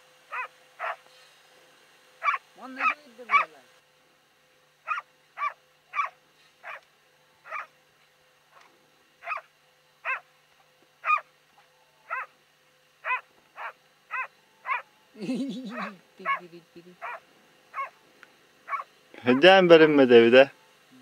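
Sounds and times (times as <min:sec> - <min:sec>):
dog barking: 0:00.3 - 0:01.0, 0:02.2 - 0:03.6, 0:04.9 - 0:06.8, 0:07.4 - 0:07.7, 0:08.5 - 0:10.3, 0:11.0 - 0:11.3, 0:12.1 - 0:12.3, 0:13.0 - 0:14.8, 0:15.8 - 0:16.4, 0:17.0 - 0:18.0, 0:18.7 - 0:19.5.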